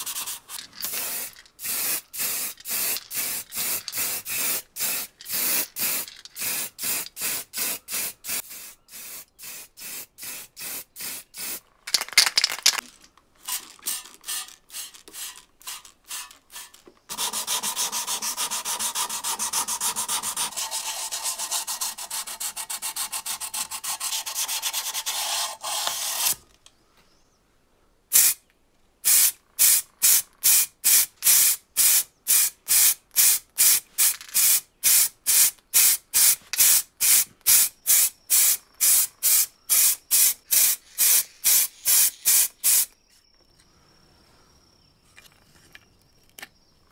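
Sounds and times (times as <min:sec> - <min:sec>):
aerosol spray can hissing: 0:00.0 - 0:12.3, 0:13.5 - 0:19.2, 0:28.1 - 0:28.4, 0:29.1 - 0:43.0
sandpaper rubbing on metal: 0:16.2 - 0:26.4.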